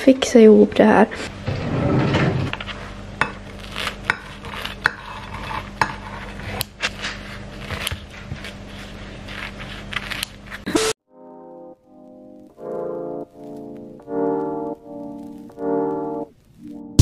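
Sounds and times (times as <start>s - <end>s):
scissors snipping tortilla: 3.4s - 10.7s.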